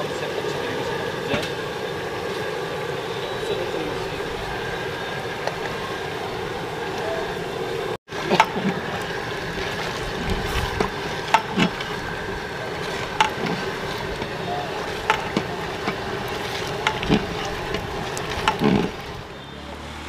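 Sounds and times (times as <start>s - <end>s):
ladle stirring pot: 8.1s - 19.3s
thick gravy bubbling and popping: 8.1s - 19.4s.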